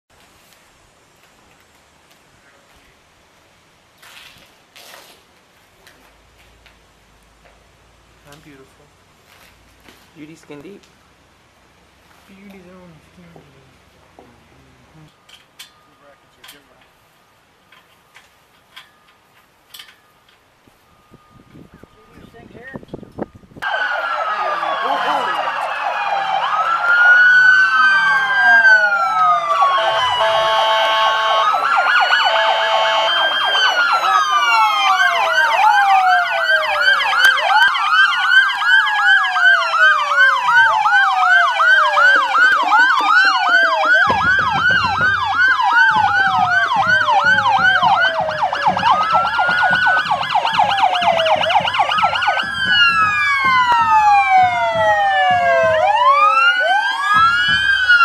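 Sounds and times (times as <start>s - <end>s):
police sirens wailing and yelping: 23.1s - 58.0s
steady horn tone: 29.5s - 33.4s.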